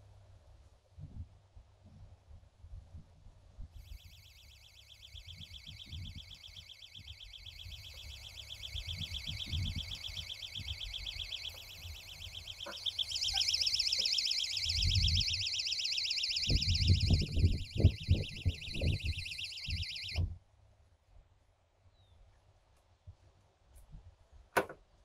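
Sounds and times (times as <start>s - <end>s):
high-pitched warbling alarm: 3.8s - 20.2s.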